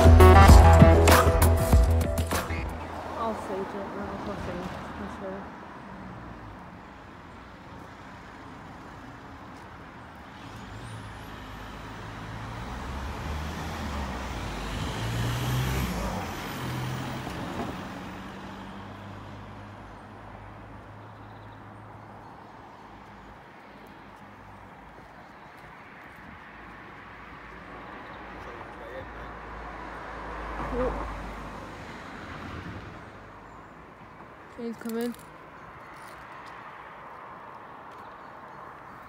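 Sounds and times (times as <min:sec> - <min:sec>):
vehicle passing by: 0:10.3 - 0:20.7, 0:26.4 - 0:33.4.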